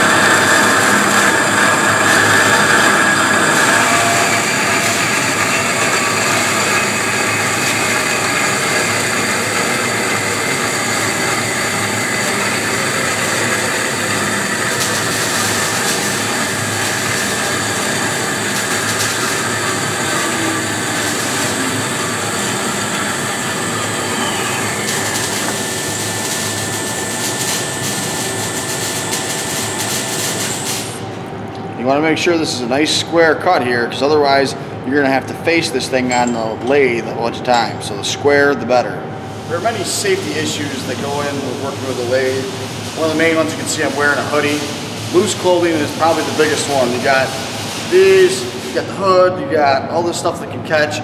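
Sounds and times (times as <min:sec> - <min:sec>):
band saw cutting steel pipe: 0:00.0 - 0:31.0, 0:39.5 - 0:48.9.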